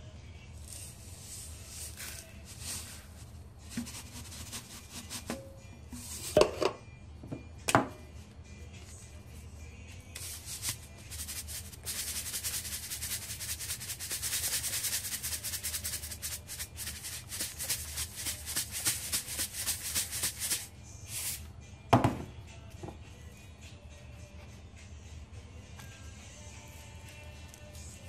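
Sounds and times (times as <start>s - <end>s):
salt shaker rattling: 0.6s - 5.4s, 10.2s - 21.4s
knock: 22.0s - 22.3s.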